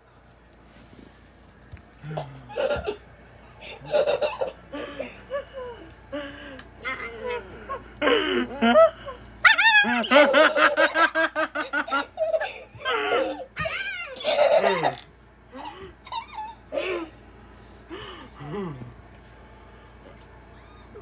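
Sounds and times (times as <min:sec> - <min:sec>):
person laughing hard: 0:06.9 - 0:13.5, 0:14.2 - 0:15.0.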